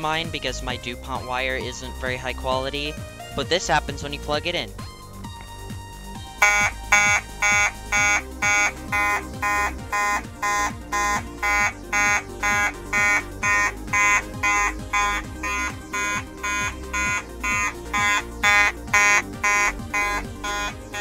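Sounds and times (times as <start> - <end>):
fire alarm horn blasts: 6.4 - 21.0.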